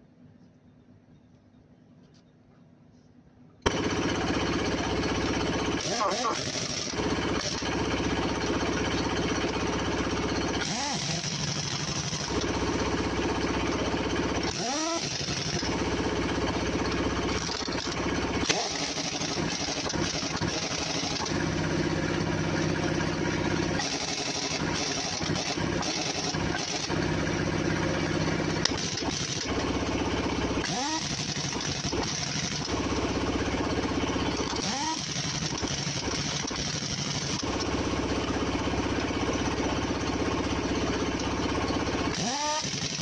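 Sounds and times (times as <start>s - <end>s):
pneumatic impact wrench hammering: 5.7s - 9.6s, 10.5s - 12.6s, 14.3s - 16.2s, 17.3s - 32.8s, 34.3s - 37.7s, 42.1s - 43.0s.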